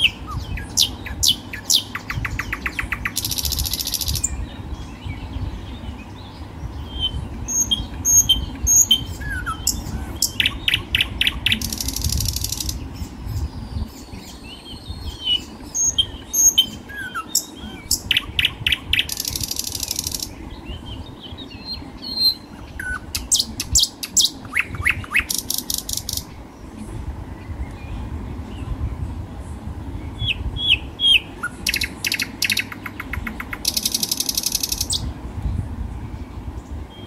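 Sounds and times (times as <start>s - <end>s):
songbirds chirping: 0.0s - 37.0s
rapid high bird trills: 30.6s - 35.1s.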